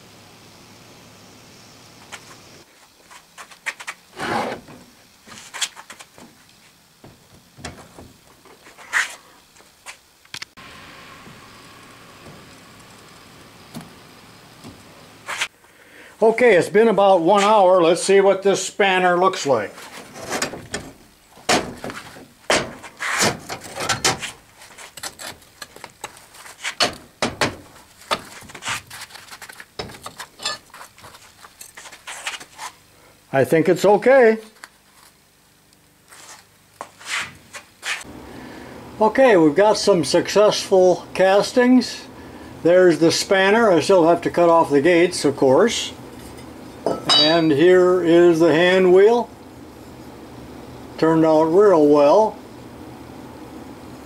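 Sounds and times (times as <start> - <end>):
sand scraping: 2.0 - 6.8, 8.5 - 10.0, 15.2 - 15.6, 22.8 - 23.4, 24.2 - 26.8, 27.7 - 32.8, 36.0 - 38.1
metal casting knocking and clattering: 20.3 - 24.2, 26.8 - 28.3, 46.3 - 47.6.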